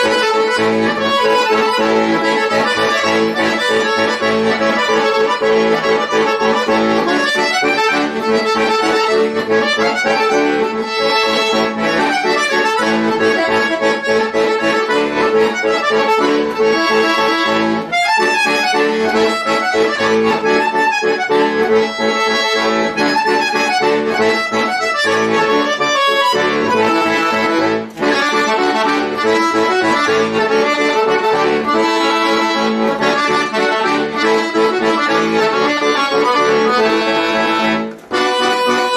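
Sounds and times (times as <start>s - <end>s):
button accordion playing: 0.0s - 38.9s.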